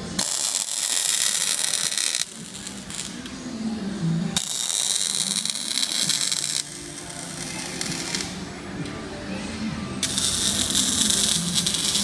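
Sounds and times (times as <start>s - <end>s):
welding arc crackling and hissing: 0.0s - 3.3s, 4.4s - 8.4s, 10.0s - 12.0s.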